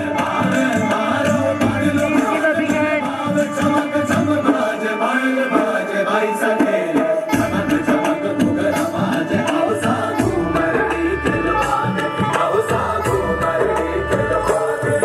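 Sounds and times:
folk song singing: 0:00.0 - 0:15.0
drum beat: 0:07.3 - 0:15.0.

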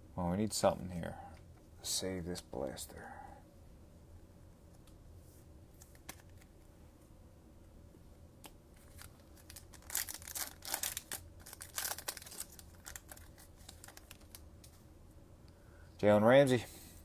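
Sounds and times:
card pack wrapper tearing: 0:08.8 - 0:14.4.

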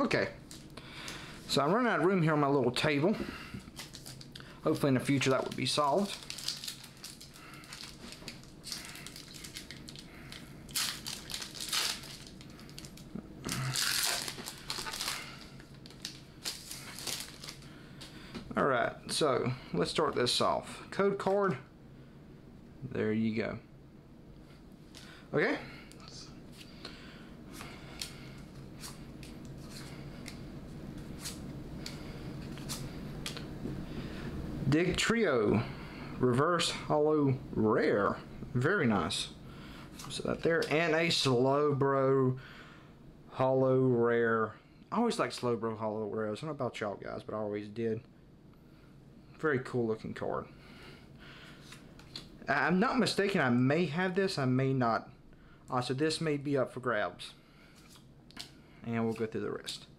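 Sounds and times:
foil wrapper tearing and crinkling: 0:03.7 - 0:04.4, 0:05.2 - 0:17.6.

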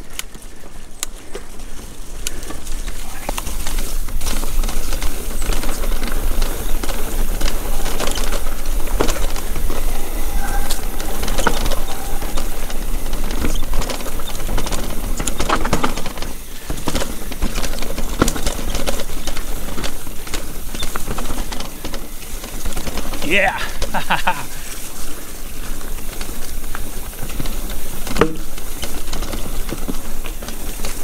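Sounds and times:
mountain bike rattling: 0:00.0 - 0:31.0
sharp knocks of bike on rocks: 0:11.2 - 0:24.4, 0:26.0 - 0:31.0.

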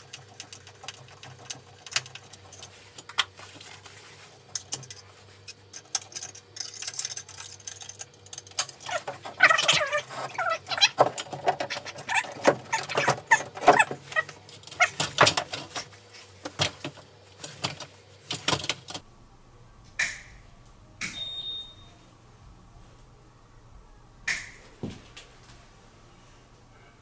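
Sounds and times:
faint steady high tone: 0:19.2 - 0:24.2.

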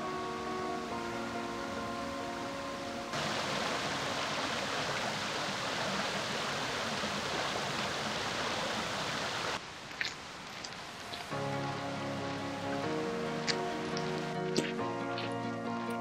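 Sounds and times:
background music: 0:00.0 - 0:03.2, 0:11.2 - 0:16.0
woodland stream rushing: 0:00.0 - 0:16.0.

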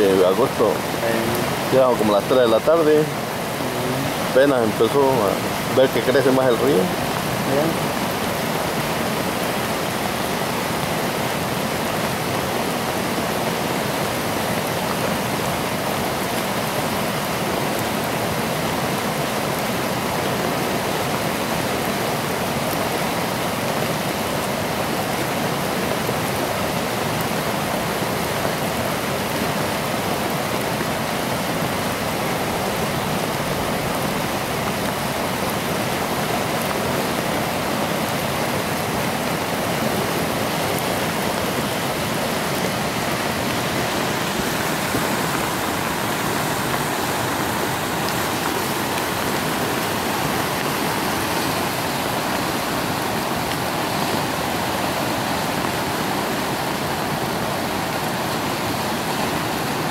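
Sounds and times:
river rushing: 0:00.0 - 0:59.9.

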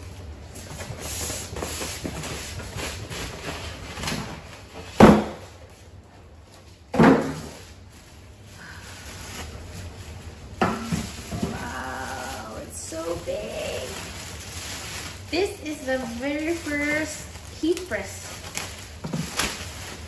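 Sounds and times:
plastic rustling: 0:00.0 - 0:20.0
styrofoam blocks being pulled off: 0:11.2 - 0:20.0.

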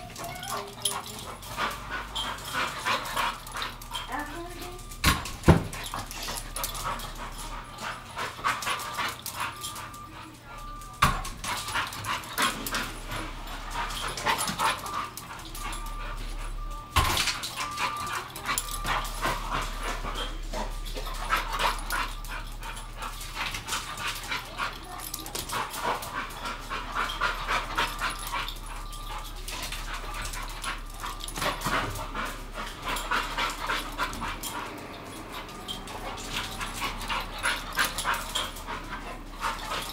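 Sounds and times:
dog whimpering and yipping: 0:00.0 - 0:04.9.

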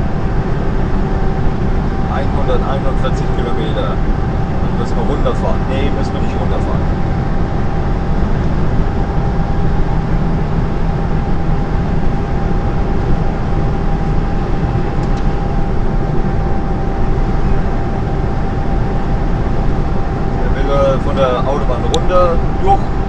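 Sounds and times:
lorry engine and road drone: 0:00.0 - 0:23.0
thin steady whine: 0:00.0 - 0:23.0.

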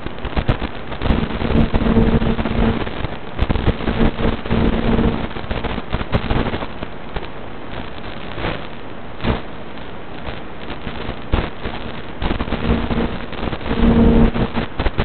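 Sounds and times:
radio static crackling: 0:00.0 - 0:15.0.

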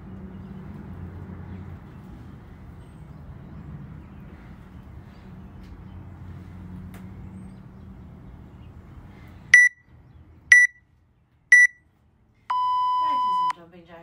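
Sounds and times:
long low timer beep: 0:09.6 - 0:09.8, 0:10.5 - 0:10.8, 0:11.5 - 0:11.8, 0:12.5 - 0:13.5
short high timer beeps: 0:09.6 - 0:09.8, 0:10.5 - 0:10.8, 0:11.5 - 0:11.8.

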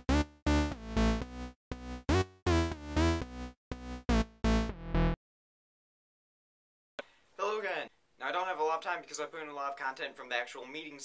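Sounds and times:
choppy synthesizer chords: 0:00.0 - 0:05.2.

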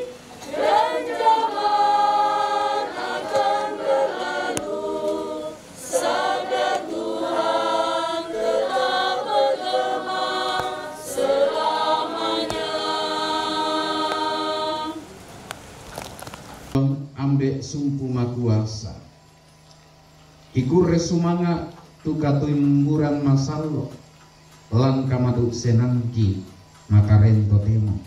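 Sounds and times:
choir singing a hymn: 0:00.0 - 0:15.5.

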